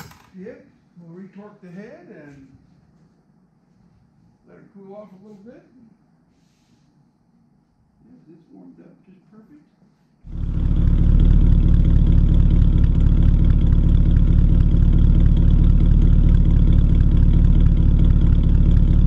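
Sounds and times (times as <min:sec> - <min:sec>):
car engine idling at tailpipe: 0:10.3 - 0:19.0.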